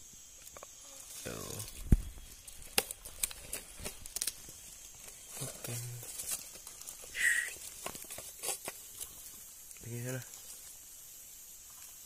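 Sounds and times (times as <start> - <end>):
dry leaf litter rustling: 1.0 - 11.0
snake hissing: 6.9 - 7.8.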